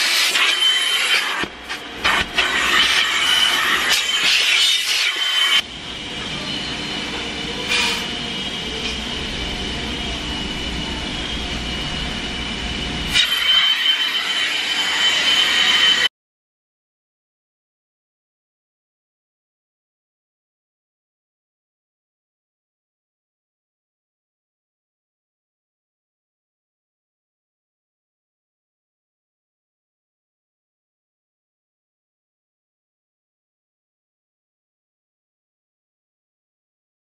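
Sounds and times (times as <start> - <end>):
vacuum hose rushing and whining: 0.0 - 16.1.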